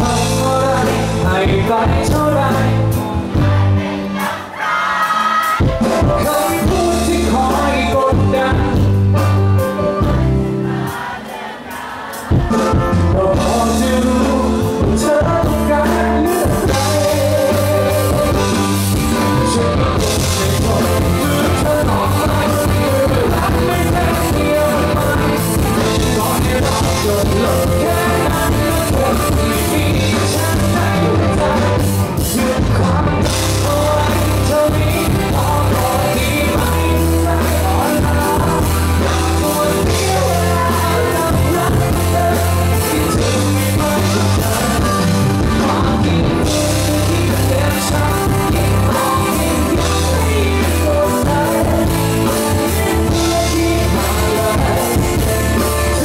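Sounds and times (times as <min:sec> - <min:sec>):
bass: 0:00.0 - 0:04.3, 0:05.4 - 0:10.9, 0:12.3 - 0:56.0
steady drum beat: 0:00.0 - 0:04.4, 0:05.0 - 0:56.0
man singing: 0:00.0 - 0:10.6, 0:12.1 - 0:56.0.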